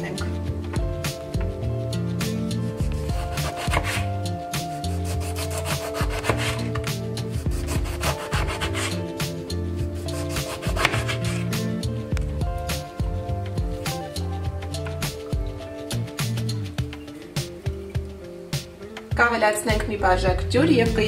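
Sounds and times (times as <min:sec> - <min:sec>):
background music: 0:00.0 - 0:21.0
knife sawing through lemon: 0:03.1 - 0:04.1, 0:04.7 - 0:06.8, 0:07.5 - 0:09.0, 0:10.0 - 0:11.6.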